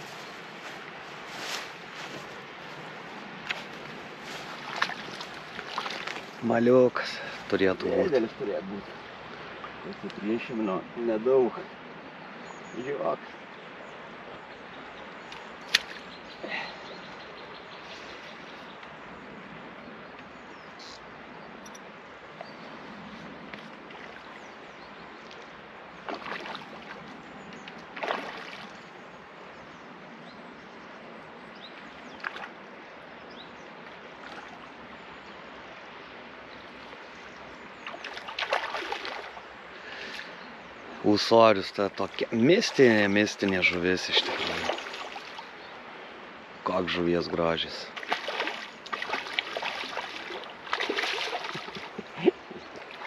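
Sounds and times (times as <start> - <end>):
river wash: 0.0 - 53.0
fish splashing at surface: 37.9 - 39.4, 48.0 - 52.0.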